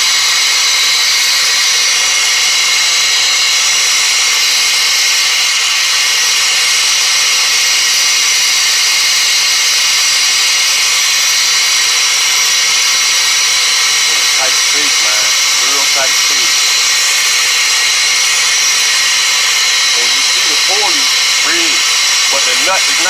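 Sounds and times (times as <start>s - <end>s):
gas torch hissing: 11.4s - 23.0s.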